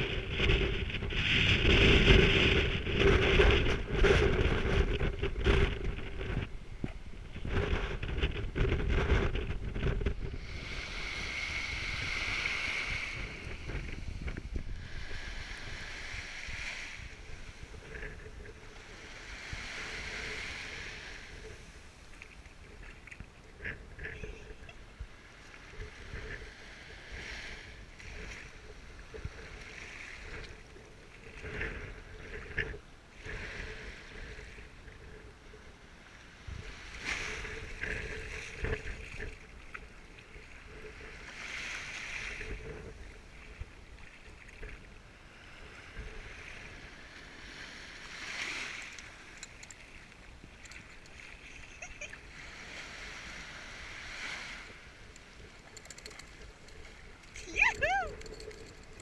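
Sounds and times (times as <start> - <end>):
wind buffeting microphone: 0.0 - 22.2
waves washing over sandy beach: 0.0 - 59.0.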